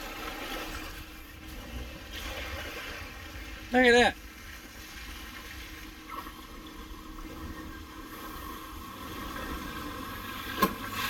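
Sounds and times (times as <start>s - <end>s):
water sloshing under vehicle: 0.0s - 11.0s.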